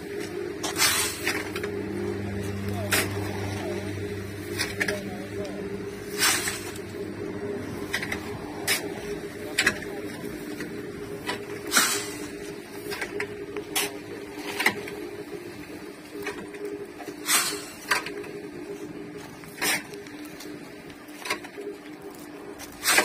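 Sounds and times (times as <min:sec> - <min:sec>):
steady low machine hum: 0:00.0 - 0:23.0
shovel scraping gravel mix: 0:00.6 - 0:01.8, 0:06.0 - 0:06.9, 0:11.7 - 0:12.6, 0:17.2 - 0:17.9, 0:22.6 - 0:23.0
gravel pouring: 0:00.6 - 0:16.3.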